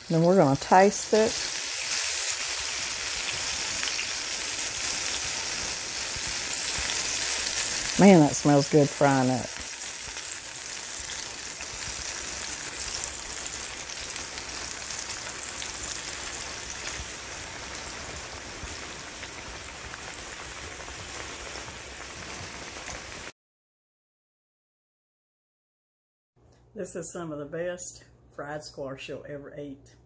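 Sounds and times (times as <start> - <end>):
food deep frying in oil: 0.0 - 23.3.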